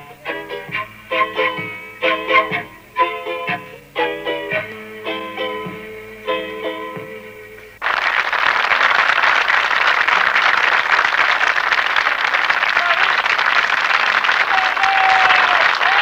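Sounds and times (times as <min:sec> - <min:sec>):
song ending: 0:00.0 - 0:07.8
crowd applauding: 0:07.6 - 0:16.0.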